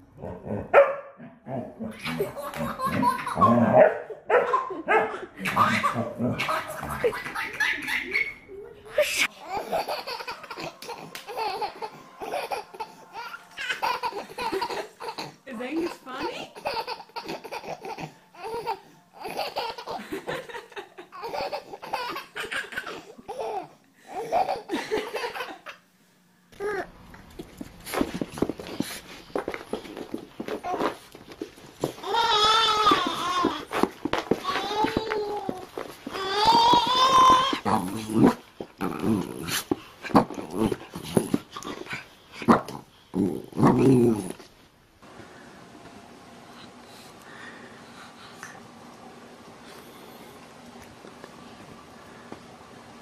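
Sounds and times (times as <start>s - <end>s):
dog growling playfully: 0.1s - 3.9s, 5.4s - 7.4s, 37.5s - 44.5s
baby laughing: 1.9s - 3.6s, 4.4s - 25.8s, 32.0s - 37.8s.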